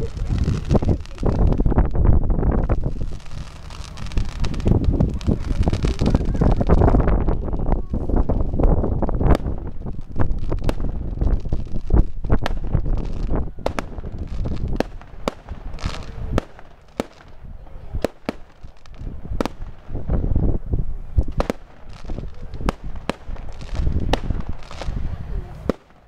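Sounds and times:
low rumble: 0.0 - 16.6
fireworks bangs and crackles: 0.0 - 26.0.

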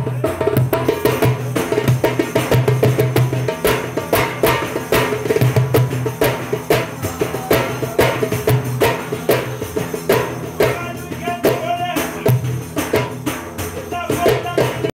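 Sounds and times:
frame drum beaten by hand: 0.0 - 14.9
person singing: 6.7 - 9.8.

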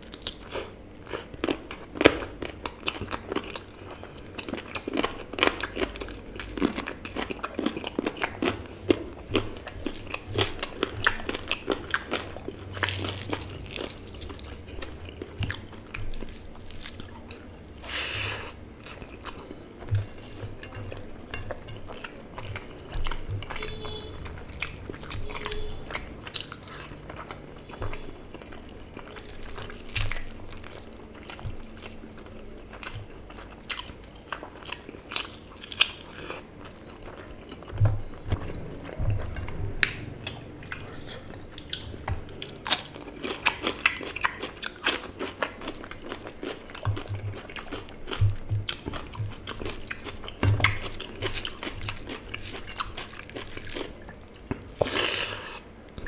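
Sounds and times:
wet chewing and mouth smacks: 4.4 - 55.1.

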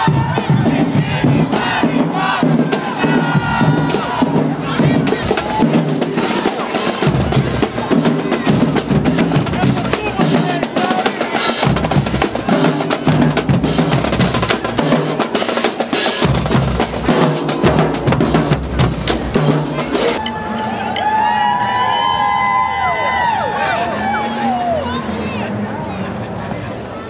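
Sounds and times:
snare and bass drums: 0.0 - 20.2
marching band playing: 0.0 - 21.4.

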